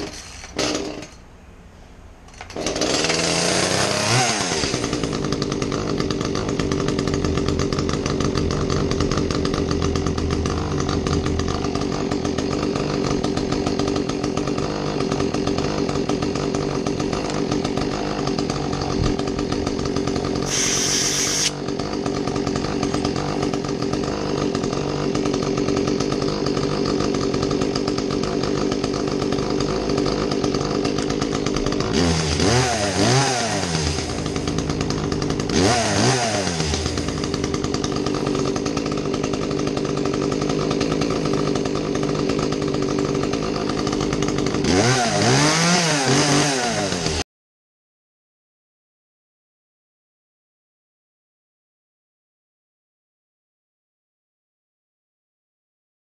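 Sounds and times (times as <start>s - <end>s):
chainsaw engine starting and idling: 0.0s - 47.2s
brief hiss: 20.5s - 21.6s.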